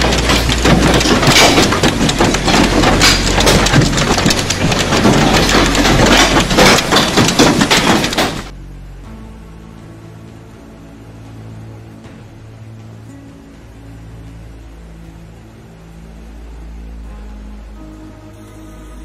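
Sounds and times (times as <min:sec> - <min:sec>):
hailstones clattering on cars: 0:00.0 - 0:08.5
quiet background music: 0:00.0 - 0:19.0.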